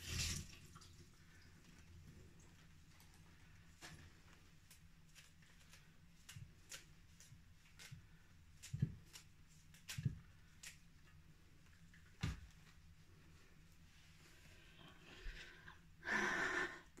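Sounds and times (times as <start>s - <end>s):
leaves snapping and rustling: 4.6s - 8.0s.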